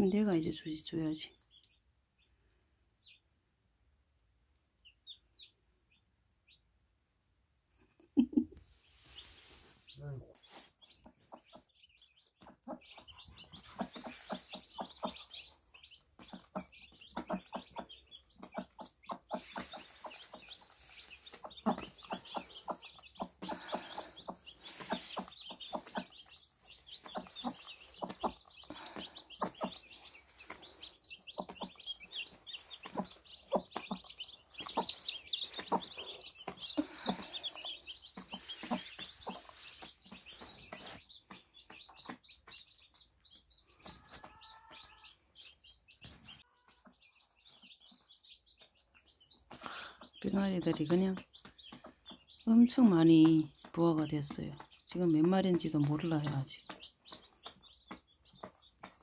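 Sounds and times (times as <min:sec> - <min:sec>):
chicks peeping: 0:04.8 - 0:06.6, 0:08.7 - 0:59.0
hen clucking: 0:10.5 - 0:43.0.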